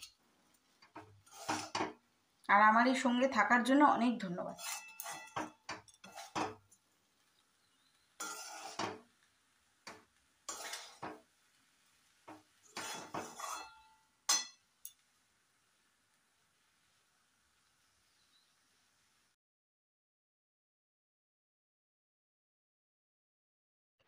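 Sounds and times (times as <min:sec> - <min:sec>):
spatula scraping metal pan: 0:00.9 - 0:02.0, 0:04.4 - 0:06.6, 0:08.2 - 0:09.2, 0:09.9 - 0:11.3, 0:12.3 - 0:15.0.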